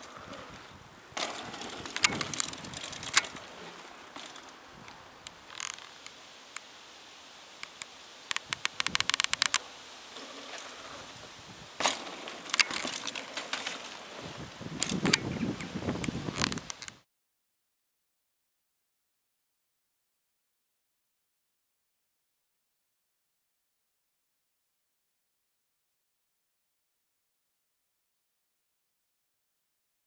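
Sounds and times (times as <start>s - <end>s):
bike tyres rolling on dirt: 0.0s - 17.0s
bike landing knocks: 1.2s - 4.6s, 11.8s - 15.3s.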